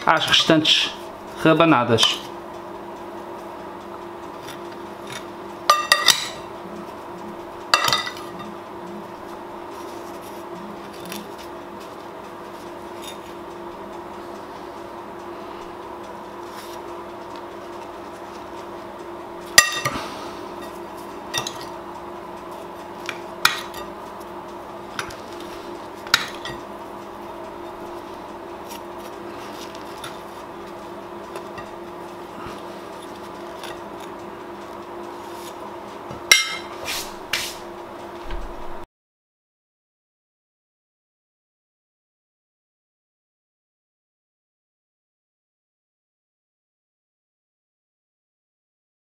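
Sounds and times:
steady hum: 0.0 - 38.9
metal spoon clinking on glass bowl: 21.3 - 21.7.

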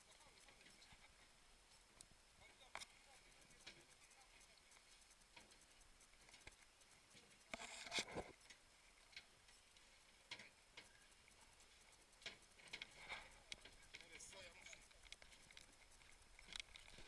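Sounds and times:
faint clicks and knocks: 0.0 - 17.0.

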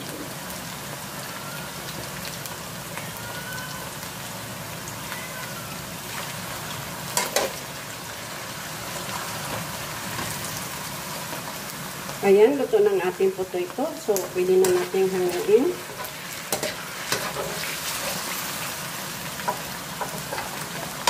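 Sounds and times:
potato strips frying in oil: 0.0 - 21.0
metal spatula stirring: 14.1 - 18.6, 19.4 - 21.0.

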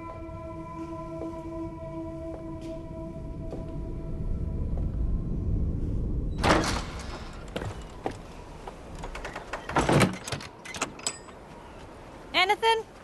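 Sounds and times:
door scraping bang: 6.3 - 8.0.

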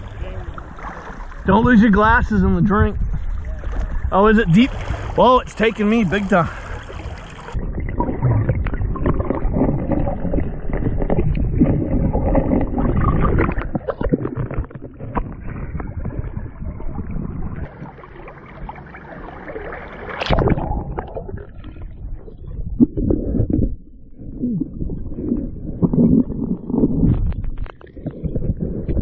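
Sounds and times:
river water churning and splashing: 0.0 - 2.2, 3.4 - 21.2
muffled underwater gurgling: 0.0 - 29.0.

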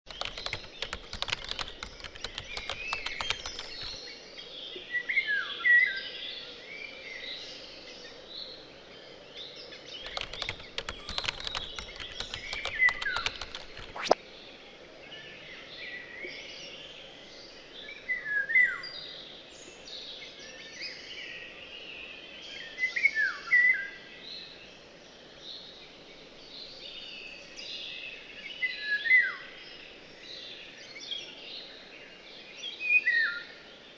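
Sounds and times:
birds chirping: 0.1 - 4.0
patter of sharp clicks: 0.1 - 4.0, 10.1 - 14.2.

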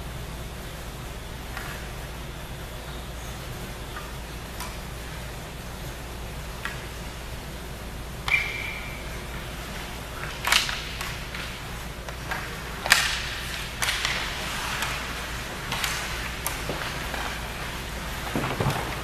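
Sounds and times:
hockey sticks and puck clacking: 1.5 - 2.0, 6.6 - 7.0, 8.2 - 19.0.

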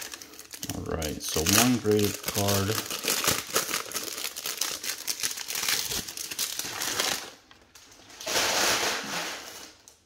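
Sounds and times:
packing paper rustling: 0.0 - 10.0
plastic wrapping crinkling: 0.0 - 10.0.

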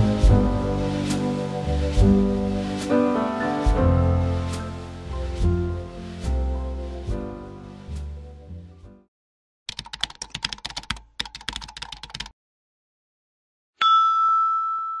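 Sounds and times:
background music: 0.0 - 9.0
computer keyboard typing: 9.7 - 12.3
bright ding: 13.8 - 15.0.

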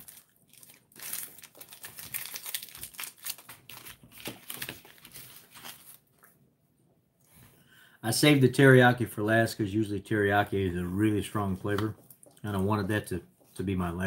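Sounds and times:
packaging crinkling and rustling: 0.0 - 6.2.

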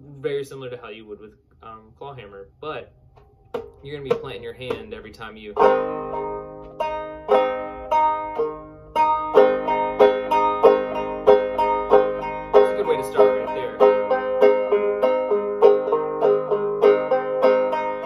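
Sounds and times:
banjo plucked notes: 3.6 - 18.0.

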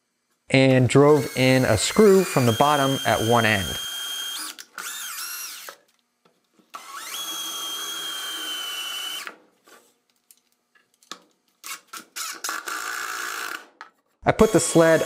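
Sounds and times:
cordless drill boring into wood: 1.0 - 5.8, 6.7 - 9.4, 11.6 - 13.7, 14.4 - 15.0
drill whirring in short bursts: 1.0 - 5.8, 6.8 - 9.4, 11.7 - 13.6, 14.4 - 15.0.

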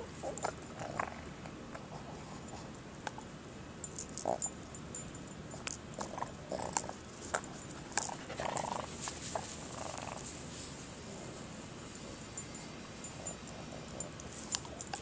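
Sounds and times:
dog sniffing: 5.6 - 15.0.

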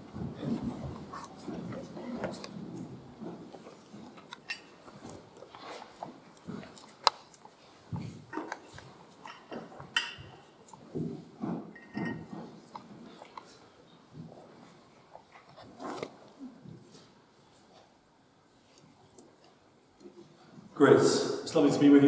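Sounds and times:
rustling and shuffling: 0.0 - 20.8.

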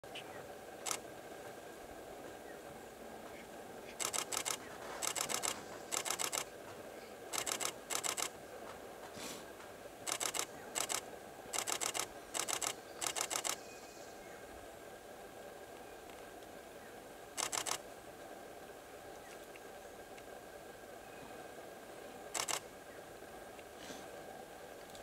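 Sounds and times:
camera shutter burst clicks: 0.8 - 1.0, 3.9 - 6.5, 7.3 - 8.4, 10.1 - 13.7, 17.4 - 17.8, 22.3 - 22.7.

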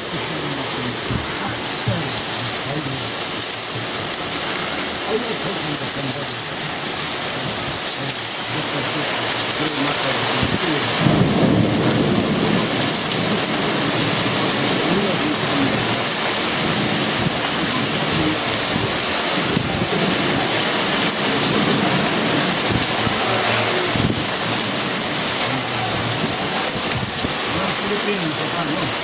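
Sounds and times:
hail and rain on tiles: 0.0 - 29.0.

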